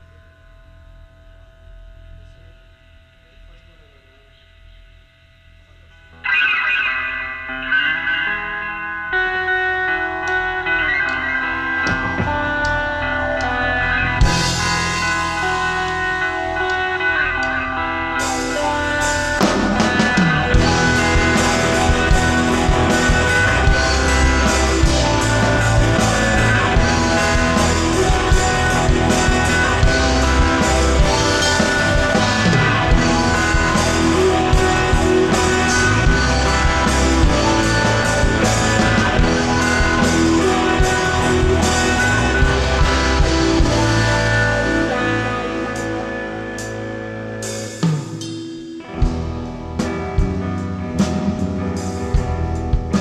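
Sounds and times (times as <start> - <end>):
electric guitar: 0.0 - 53.0
rock band playing live: 6.0 - 53.0
drum kit beat: 10.2 - 53.0.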